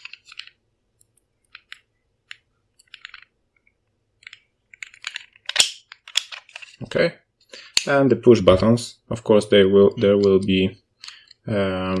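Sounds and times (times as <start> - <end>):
light plastic clicks and scrapes: 10.0 - 12.0.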